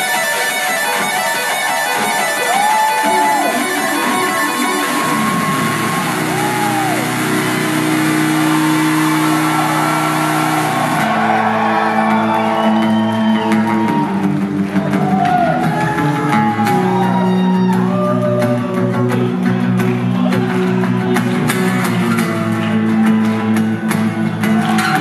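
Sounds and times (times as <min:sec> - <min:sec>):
amplified acoustic guitar playing: 0:00.0 - 0:25.0
audience whoops and shouts: 0:02.2 - 0:19.2, 0:24.4 - 0:25.0.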